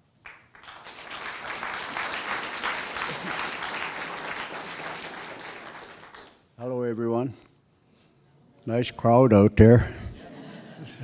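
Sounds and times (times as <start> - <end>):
audience applauding: 0.2 - 6.4.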